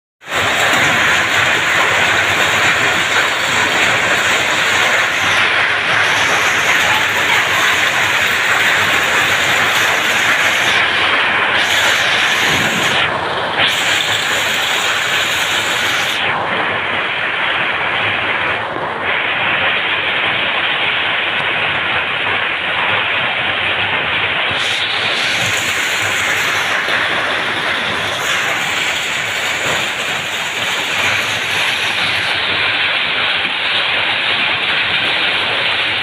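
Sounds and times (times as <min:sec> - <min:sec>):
hail clattering on ground: 0:00.3 - 0:13.0, 0:13.7 - 0:16.1, 0:24.6 - 0:36.0.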